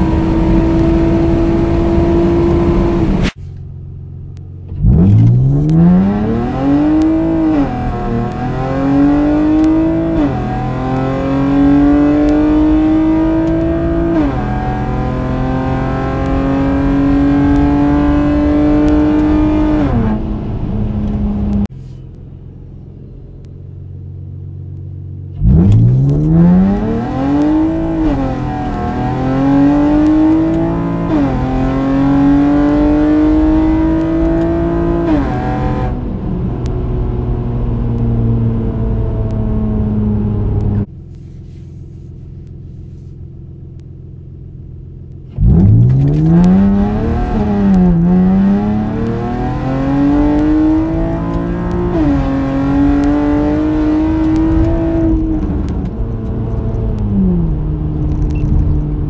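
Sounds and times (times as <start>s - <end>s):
car engine accelerating: 0.0s - 41.1s, 42.2s - 59.0s
car engine idling: 3.4s - 5.0s.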